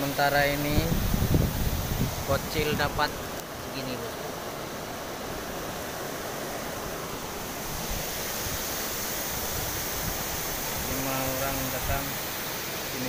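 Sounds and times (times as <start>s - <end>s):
wind on microphone: 0.0s - 3.4s, 6.6s - 13.0s.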